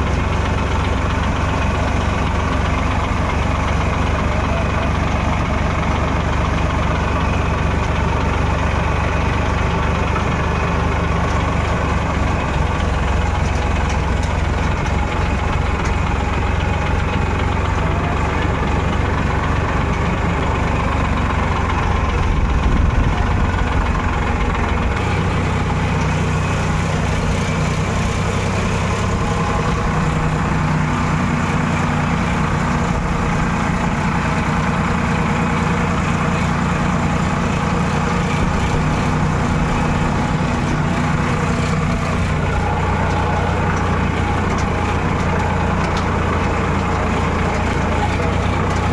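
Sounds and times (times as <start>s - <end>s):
tractor diesel engine running: 0.0s - 48.9s.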